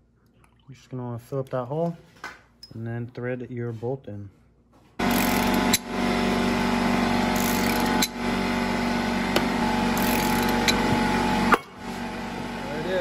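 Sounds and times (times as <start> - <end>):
powered ratchet motor: 5.0 - 8.5, 9.3 - 11.6
ratchet click: 5.1 - 5.8, 7.4 - 8.2, 10.0 - 10.8.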